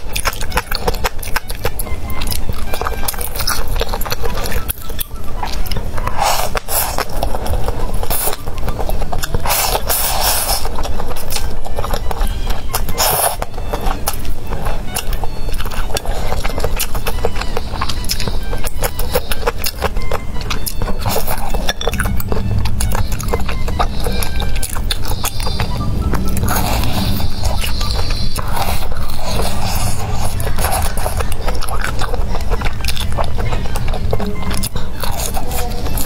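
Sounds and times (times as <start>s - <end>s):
background music: 0.0s - 36.0s
chewing mouth sounds: 0.0s - 36.0s
slurping noodles: 9.2s - 11.5s, 26.3s - 33.8s.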